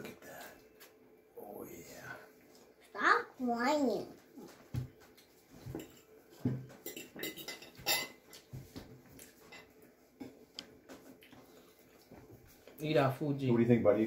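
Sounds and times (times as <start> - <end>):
dishes and utensils clinking: 5.0 - 9.8.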